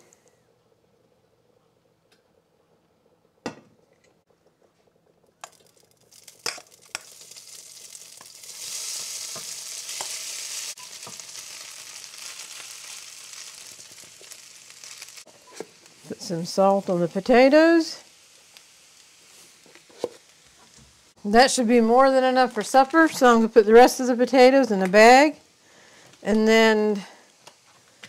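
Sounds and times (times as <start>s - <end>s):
oil sizzling: 3.0s - 28.0s.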